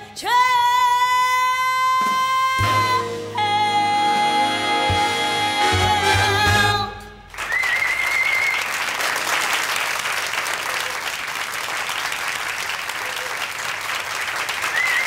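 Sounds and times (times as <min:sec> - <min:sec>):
audience applause: 0:07.3 - 0:15.0.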